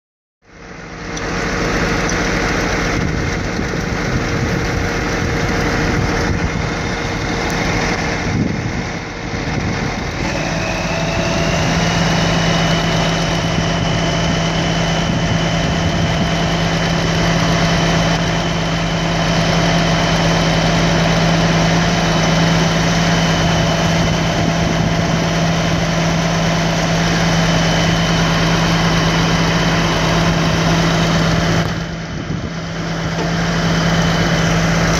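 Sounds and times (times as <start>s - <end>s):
diesel truck engine running: 0.4s - 34.9s
steady hum and whine: 0.5s - 34.9s.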